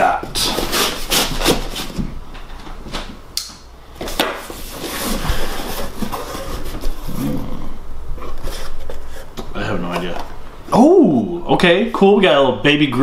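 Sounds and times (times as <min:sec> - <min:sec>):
cardboard rustling and scraping: 0:00.2 - 0:02.2, 0:04.0 - 0:07.5, 0:08.2 - 0:10.2.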